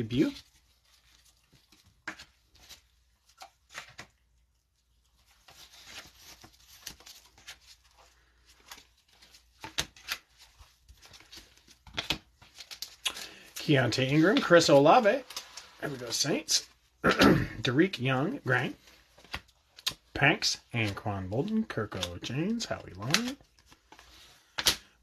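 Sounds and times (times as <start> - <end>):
cards sliding and flicking: 8.6 - 13.2, 20.8 - 24.9.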